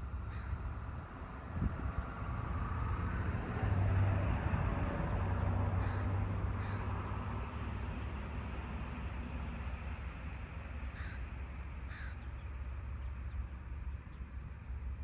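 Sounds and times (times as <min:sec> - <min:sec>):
distant engine humming: 0:00.0 - 0:15.0
crow cawing: 0:00.3 - 0:00.6, 0:05.8 - 0:06.9, 0:10.9 - 0:11.2, 0:11.9 - 0:12.3.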